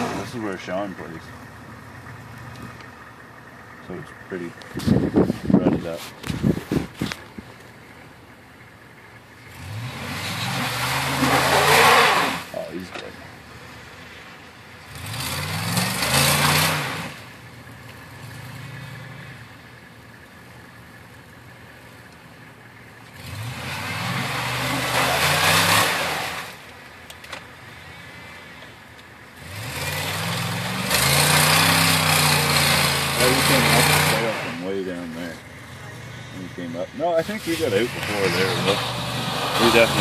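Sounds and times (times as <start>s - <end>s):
engine revving: 0.0s - 6.9s, 9.0s - 20.0s, 22.9s - 40.0s
tyres spinning: 9.4s - 13.4s.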